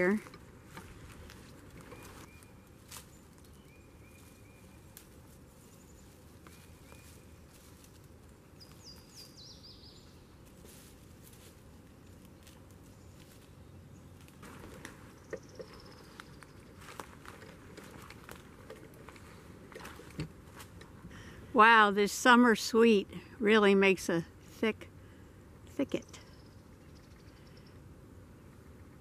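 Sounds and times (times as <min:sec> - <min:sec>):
footsteps in dry leaves: 0:00.8 - 0:09.4, 0:10.0 - 0:15.1, 0:16.1 - 0:20.8
bird calls: 0:01.4 - 0:05.0, 0:05.6 - 0:07.6, 0:12.4 - 0:18.0, 0:26.0 - 0:29.0.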